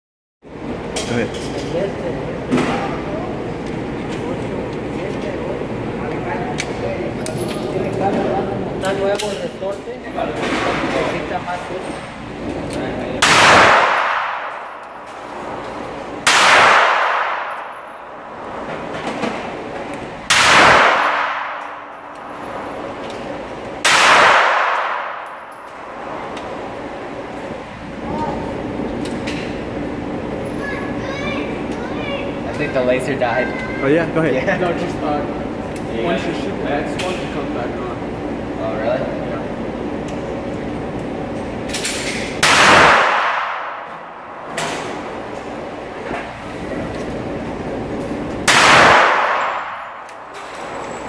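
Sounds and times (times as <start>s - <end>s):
steady background noise: 0.4s - 51.0s
handgun shots echoing indoors: 13.2s - 18.6s, 20.3s - 23.2s, 23.8s - 26.5s, 41.7s - 45.4s, 48.4s - 51.0s.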